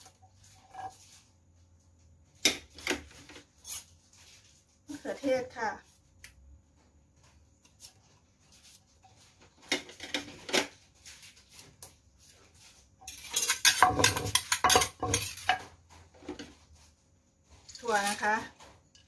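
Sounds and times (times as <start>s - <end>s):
pestle knocking in a mortar: 13.4s - 15.8s.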